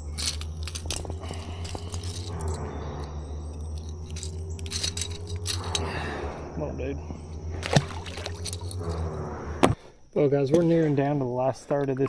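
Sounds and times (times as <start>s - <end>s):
fishing lure hooks rattling: 0.0s - 2.6s, 3.5s - 5.9s, 8.2s - 9.1s
steady low hum: 0.0s - 10.1s.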